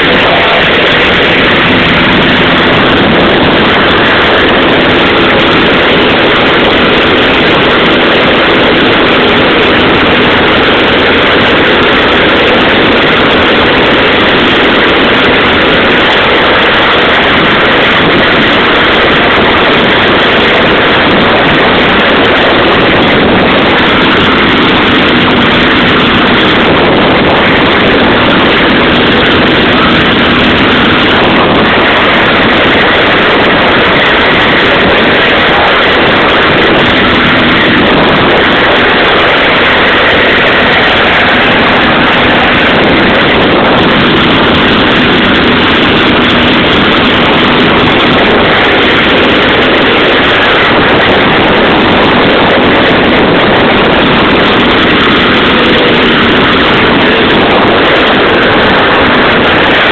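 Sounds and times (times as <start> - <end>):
airplane engine and propeller: 0.0 - 59.9.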